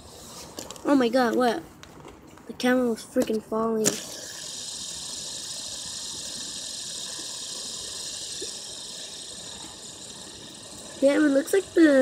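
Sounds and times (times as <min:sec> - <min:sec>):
fidget spinner whirring: 0:02.6 - 0:12.0.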